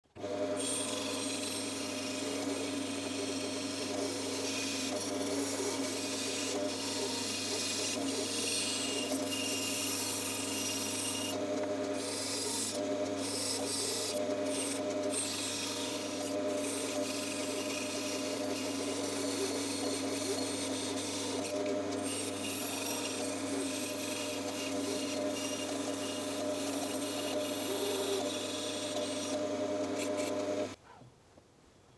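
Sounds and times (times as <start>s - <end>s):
bandsaw motor hum: 0.1s - 30.8s.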